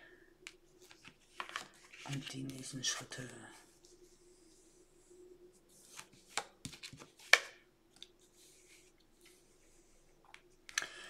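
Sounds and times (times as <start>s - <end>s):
steady low hum: 0.0s - 6.0s
faint brushing: 0.7s - 6.4s, 8.2s - 10.7s
cards slapping and swishing: 5.8s - 9.4s.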